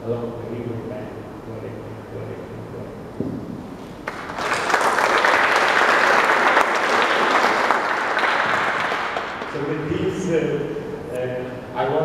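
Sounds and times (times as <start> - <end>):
audience applauding: 4.0 - 9.8.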